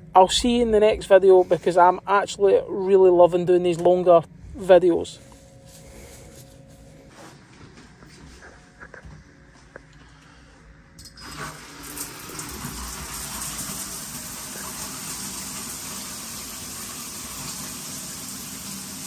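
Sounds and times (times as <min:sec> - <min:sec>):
shower water running: 0:11.2 - 0:19.0.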